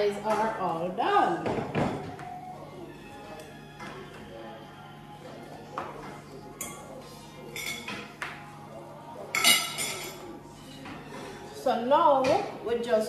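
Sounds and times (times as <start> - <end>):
dishes and cutlery clinking: 5.2 - 8.5, 9.2 - 11.4.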